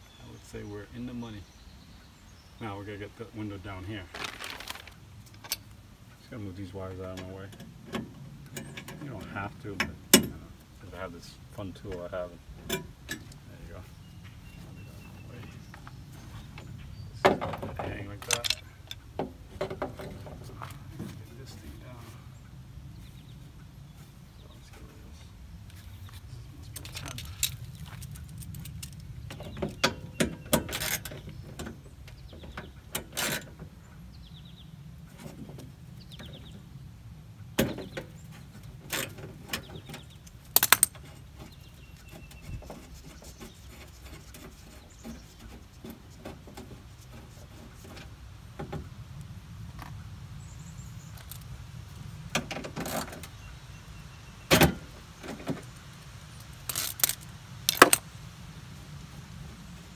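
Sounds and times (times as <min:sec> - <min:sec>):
clips clicking and rattling: 0:18.2 - 0:19.0, 0:26.8 - 0:29.1, 0:56.6 - 0:58.0.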